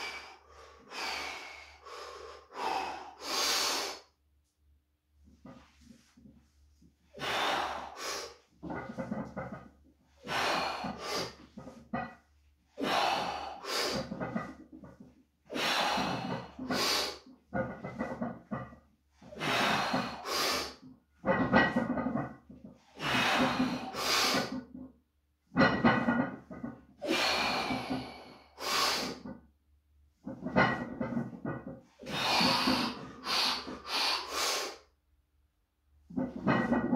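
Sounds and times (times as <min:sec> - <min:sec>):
person breathing hard: 0:00.0 - 0:04.1, 0:07.1 - 0:08.4, 0:10.2 - 0:11.4, 0:12.8 - 0:14.2, 0:15.5 - 0:17.3, 0:19.3 - 0:20.8, 0:23.0 - 0:24.6, 0:27.0 - 0:29.2, 0:32.0 - 0:34.8.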